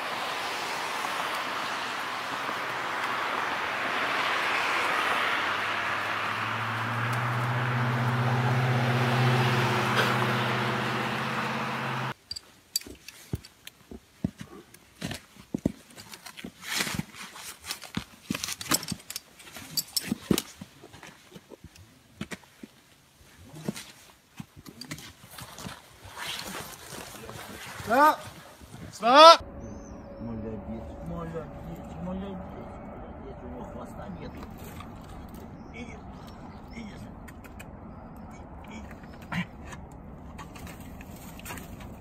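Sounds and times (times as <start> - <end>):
steady rushing noise: 29.4 - 35.7
low even hum: 29.4 - 37.3.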